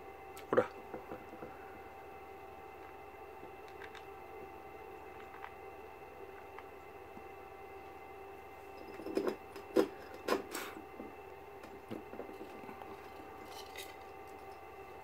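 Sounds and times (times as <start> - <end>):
faint scratches and clicks: 3.6 - 4.1.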